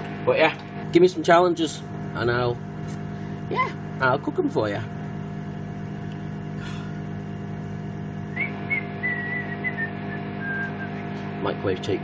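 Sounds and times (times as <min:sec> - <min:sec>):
microwave oven humming: 0:00.0 - 0:12.0
man whistling a tune: 0:08.3 - 0:11.0.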